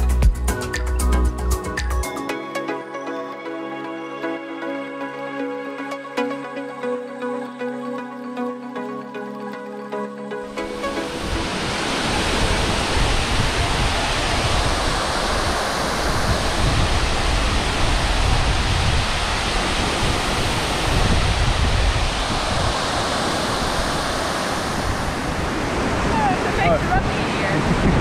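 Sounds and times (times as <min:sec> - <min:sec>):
waterfall rushing: 0:10.4 - 0:28.0.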